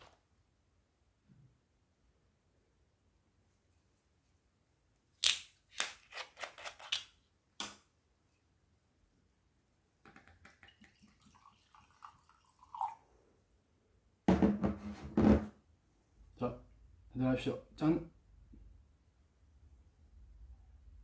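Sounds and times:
liquid pouring into glass: 0:10.5 - 0:13.0.

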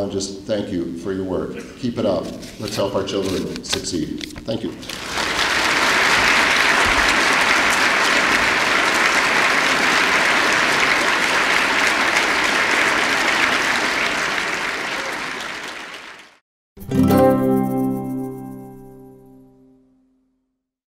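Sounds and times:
audience applauding: 0:04.7 - 0:16.4
plucked guitar: 0:16.8 - 0:19.8.

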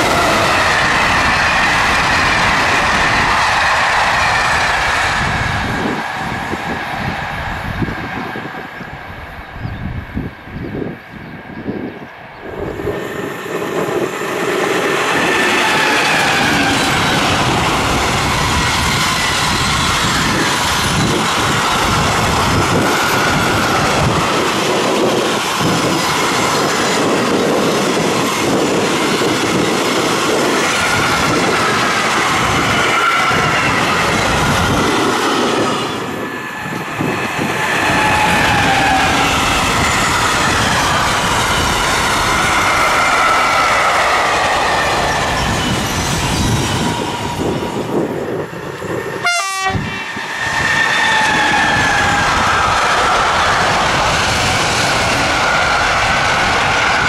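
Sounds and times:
train wheels clattering on rails: 0:12.8 - 0:48.9
high-pitched wheel squeal: 0:30.3 - 0:34.8, 0:49.7 - 0:53.3.

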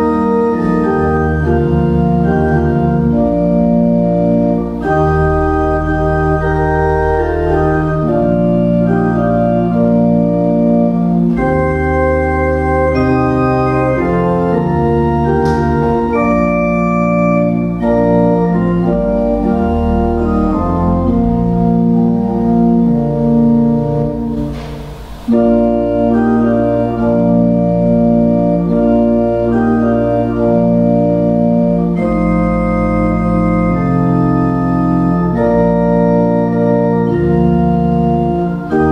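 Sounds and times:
pipe organ playing chords: 0:00.0 - 0:38.9.

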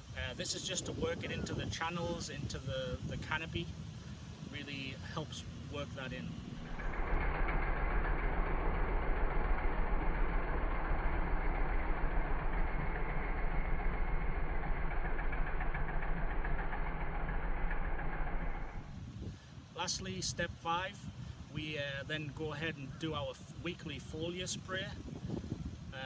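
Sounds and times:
utility vehicle engine running: 0:05.4 - 0:19.2.

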